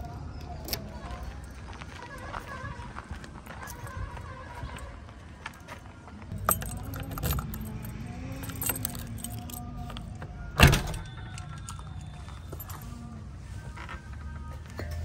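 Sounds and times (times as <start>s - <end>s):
lock turning with sharp clack: 6.3s - 12.0s
keys jangling on a key ring: 6.3s - 13.1s.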